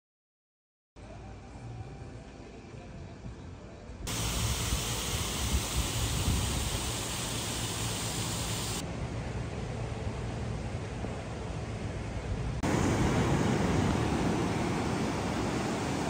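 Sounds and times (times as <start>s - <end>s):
water feature rushing: 4.1s - 8.8s, 12.6s - 16.0s.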